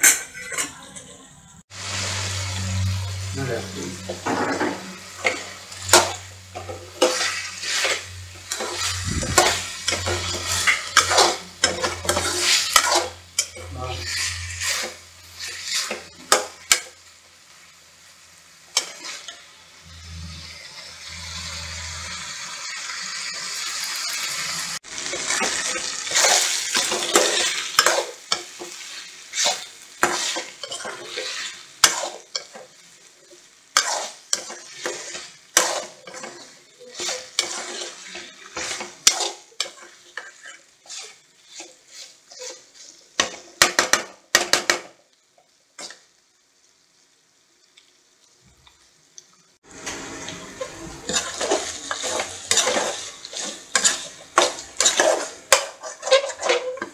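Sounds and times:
chicken sizzling in oil: 0:01.6 - 0:56.9
metal spoon scraping pan: 0:02.6 - 0:16.9, 0:25.0 - 0:32.7, 0:33.8 - 0:43.9, 0:49.9 - 0:56.9.

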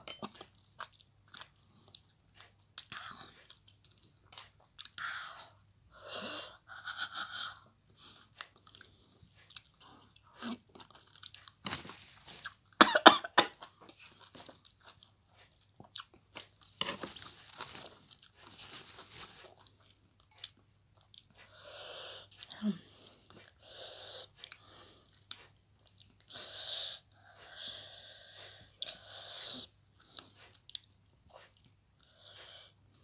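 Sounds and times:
person chewing with mouth clicks: 0:00.1 - 0:05.0, 0:07.5 - 0:11.6, 0:13.6 - 0:17.0, 0:24.2 - 0:26.4, 0:29.9 - 0:32.7
person coughing: 0:12.8 - 0:13.6.

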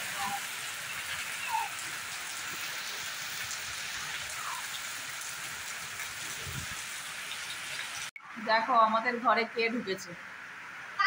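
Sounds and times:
heavy rain on pavement: 0:00.0 - 0:08.1.

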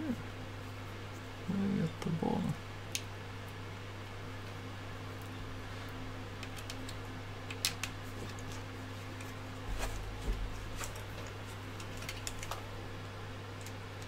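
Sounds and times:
steady low hum: 0:00.0 - 0:14.0
hands handling wires: 0:06.4 - 0:12.7.

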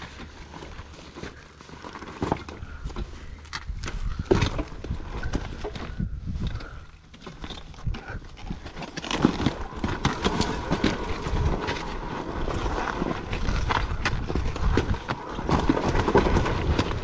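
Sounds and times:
dirt bike banging over rocks: 0:03.6 - 0:17.0.

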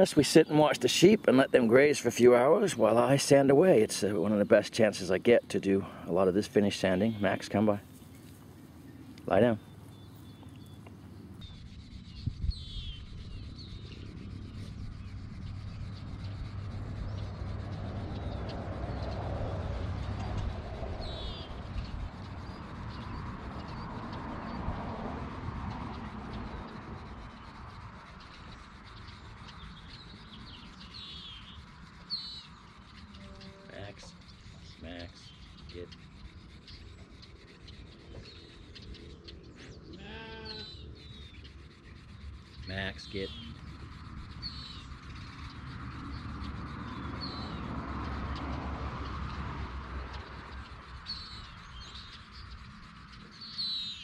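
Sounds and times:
sandpaper rubbing wood: 0:34.3 - 0:38.8, 0:40.6 - 0:45.2.

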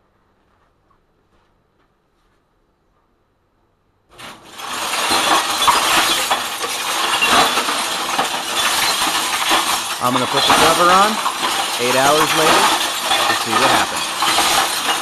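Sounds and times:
cement mixer running: 0:04.2 - 0:15.0
glass and scrap crashing in drum: 0:04.2 - 0:15.0.

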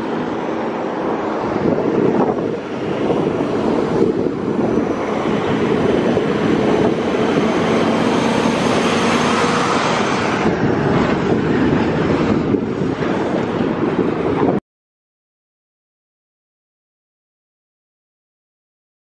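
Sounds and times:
freight train running: 0:00.0 - 0:14.6.

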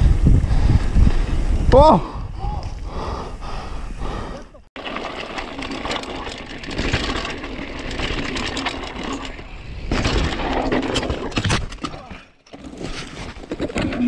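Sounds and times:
bike crashing into rock and brush: 0:04.8 - 0:14.0
mountain bike rattling over rock: 0:04.8 - 0:14.0.

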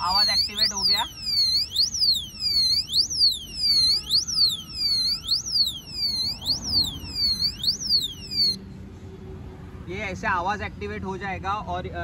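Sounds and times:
electronic alarm siren: 0:00.0 - 0:08.6.

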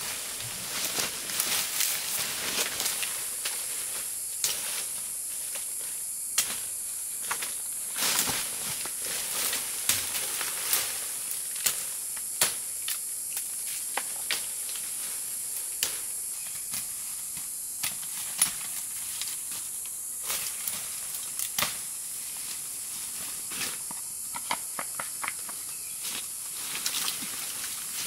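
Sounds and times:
steady high hiss: 0:00.0 - 0:28.0
sharp clicks and knocks: 0:23.9 - 0:25.6.

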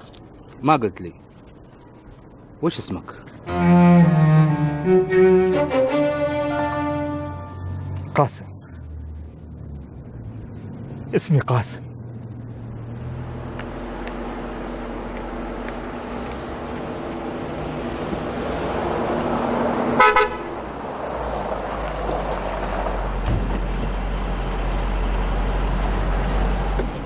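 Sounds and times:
car horn toot: 0:20.0 - 0:20.6.

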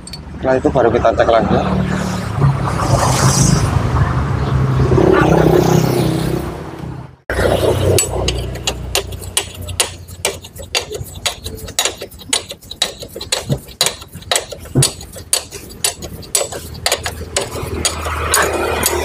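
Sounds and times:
metallic clicks and clinks: 0:00.0 - 0:00.3.

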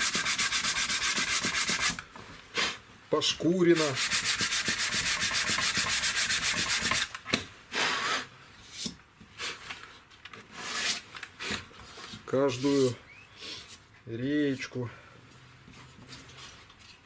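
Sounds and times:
sandpaper rubbing on wood: 0:00.0 - 0:02.0, 0:03.7 - 0:07.1.

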